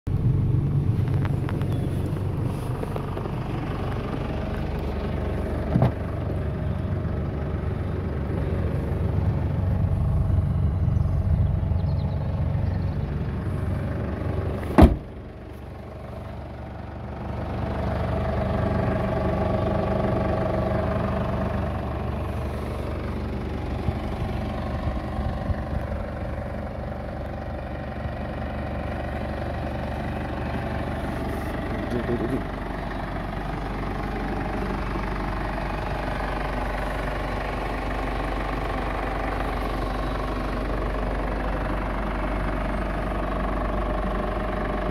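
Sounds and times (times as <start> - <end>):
diesel engine idling: 0.1 - 44.9
sharp knock: 14.8 - 15.0.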